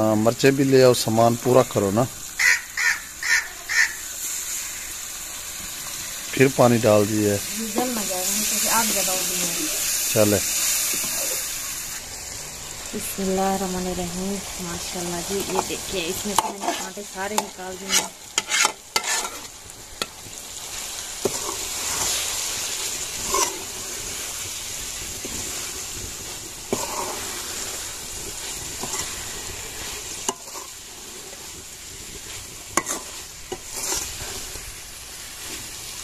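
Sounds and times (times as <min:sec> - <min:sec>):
sauce sizzling in a pan: 0:00.0 - 0:36.0
metal ladle scraping a pan: 0:15.4 - 0:20.1, 0:21.2 - 0:24.3, 0:26.7 - 0:34.7.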